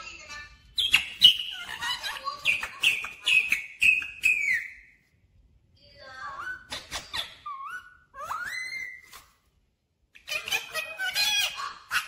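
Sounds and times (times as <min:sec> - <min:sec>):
parakeet whistled calls: 0:00.8 - 0:05.0, 0:06.4 - 0:09.2.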